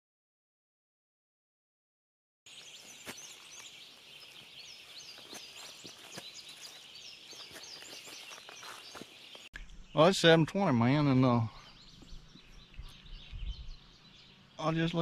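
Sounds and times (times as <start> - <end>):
birds chirping: 2.5 - 15.0.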